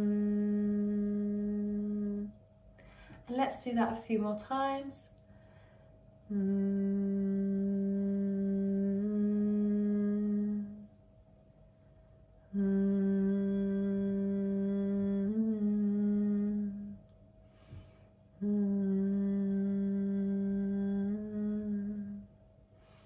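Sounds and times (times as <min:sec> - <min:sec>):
woman humming low notes: 0:00.0 - 0:02.4, 0:06.3 - 0:11.0, 0:12.4 - 0:23.0
breath: 0:02.8 - 0:03.2, 0:05.3 - 0:06.0, 0:17.4 - 0:18.2, 0:22.8 - 0:23.0.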